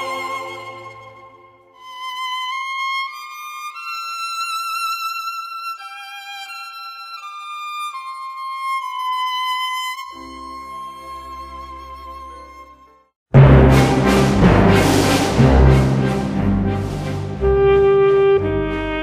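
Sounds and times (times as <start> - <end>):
solo violin melody: 0.0 - 13.0
lower instruments: 13.3 - 19.0.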